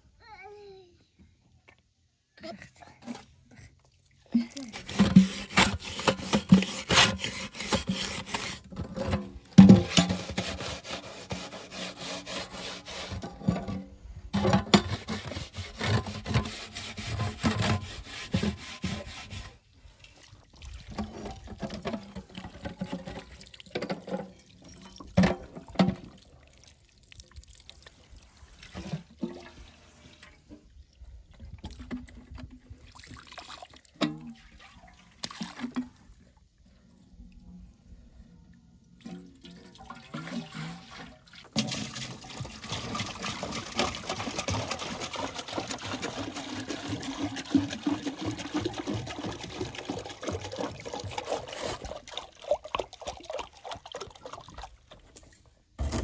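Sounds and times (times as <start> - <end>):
kettle scrubbed with sand: 4.6 - 19.6, 41.7 - 52.2
water pouring over kettle: 39.7 - 54.3.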